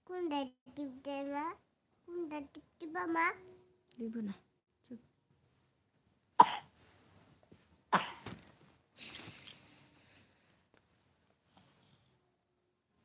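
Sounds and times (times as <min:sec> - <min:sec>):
person coughing: 0:06.4 - 0:06.7, 0:08.0 - 0:08.3.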